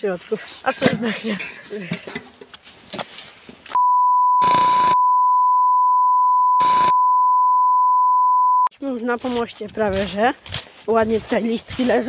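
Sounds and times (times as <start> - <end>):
steady test-tone beep: 3.8 - 8.7.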